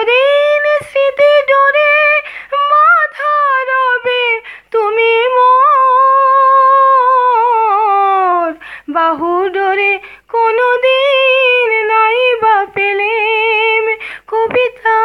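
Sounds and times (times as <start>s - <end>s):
woman singing unaccompanied: 0.0s - 15.0s
quick breaths: 2.2s - 2.5s, 4.4s - 4.7s, 8.6s - 8.9s, 14.0s - 14.3s.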